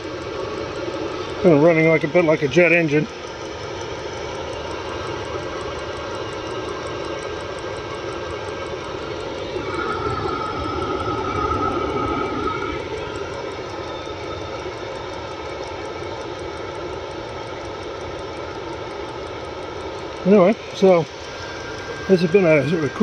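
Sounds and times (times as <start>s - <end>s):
heater burner roaring: 0.0s - 23.0s
exhaust whistle: 9.5s - 14.8s, 21.0s - 23.0s.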